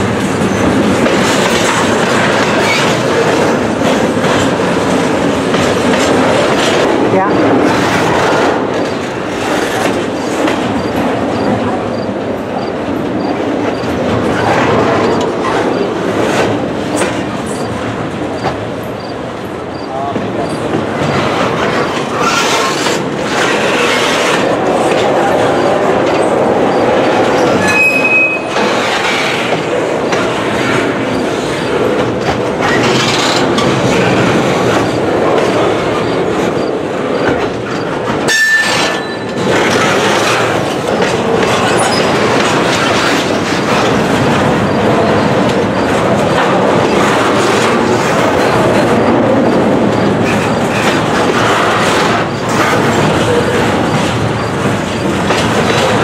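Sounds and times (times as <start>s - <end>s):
train wheels clattering on rails: 0.0s - 56.0s
high wheel squeals: 27.4s - 28.6s.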